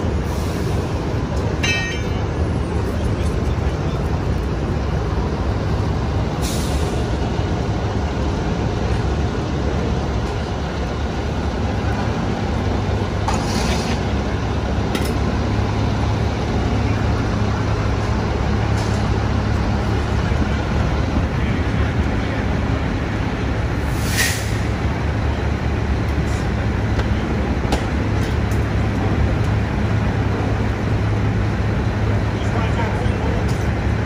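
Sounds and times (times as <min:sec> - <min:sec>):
diesel trucks idling: 0:00.0 - 0:34.0
air brakes hissing: 0:00.2 - 0:01.0, 0:06.4 - 0:07.1, 0:13.3 - 0:14.0, 0:23.8 - 0:24.8.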